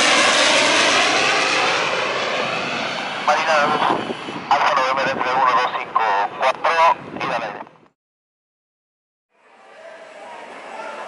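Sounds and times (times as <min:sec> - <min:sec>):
aircraft engine rush: 0:00.0 - 0:07.9.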